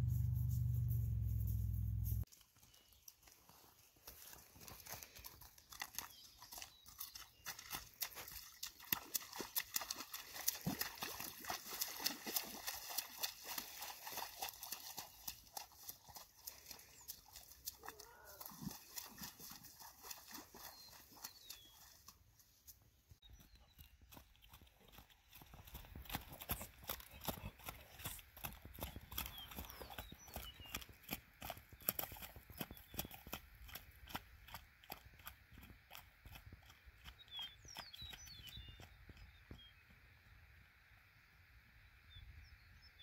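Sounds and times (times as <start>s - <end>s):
hoofbeats on wet dirt road: 0.0s - 40.0s
bird chirping: 28.8s - 31.1s, 37.0s - 39.9s.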